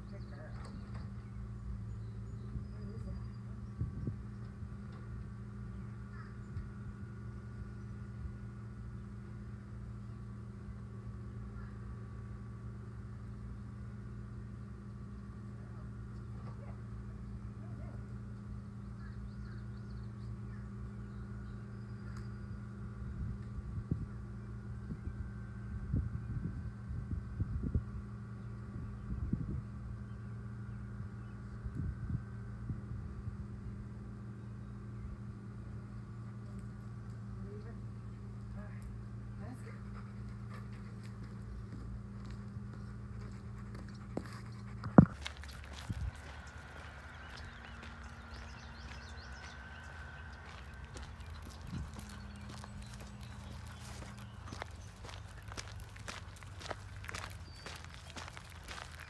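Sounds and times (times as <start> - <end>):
steady low motor hum: 0.0 - 59.0.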